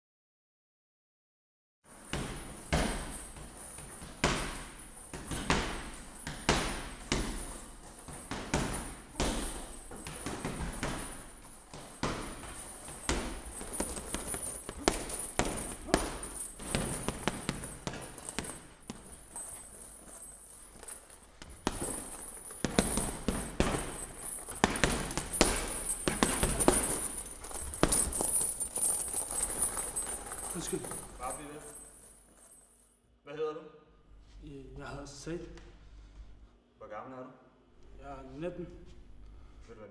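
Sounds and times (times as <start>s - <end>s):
punches thudding on heavy bag: 1.9s - 31.7s.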